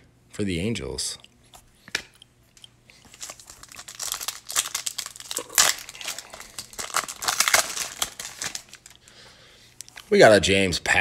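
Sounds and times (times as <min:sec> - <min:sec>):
foil wrapper crinkling: 0:03.0 - 0:09.2.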